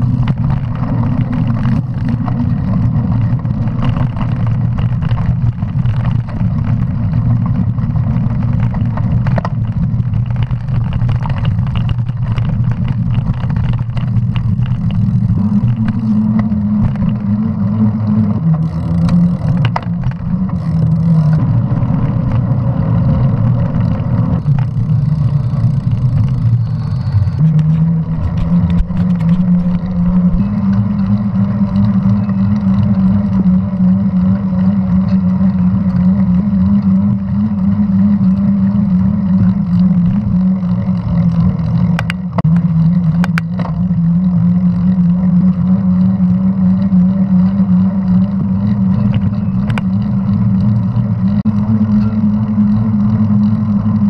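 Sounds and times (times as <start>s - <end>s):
bike rattles and knocks: 0.0s - 54.0s
bike tyres humming on pavement: 0.0s - 54.0s
wind rush on microphone: 0.0s - 54.0s.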